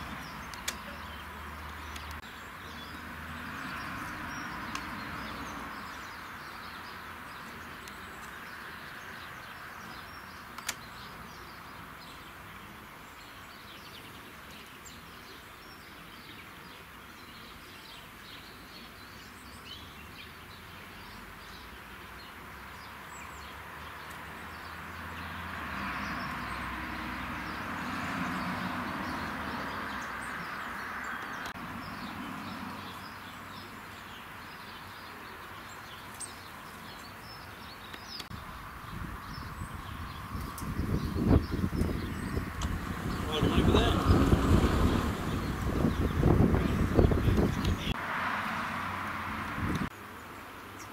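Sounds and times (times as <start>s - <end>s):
small birds chirping: 0.0s - 48.0s, 49.4s - 50.9s
outdoor background noise: 0.0s - 50.9s
sharp click: 0.5s - 0.8s, 10.5s - 10.9s.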